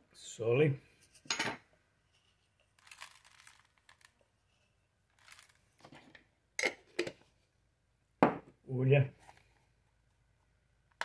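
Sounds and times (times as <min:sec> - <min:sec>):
salt sprinkling rustle: 0:02.7 - 0:04.2, 0:05.1 - 0:05.8.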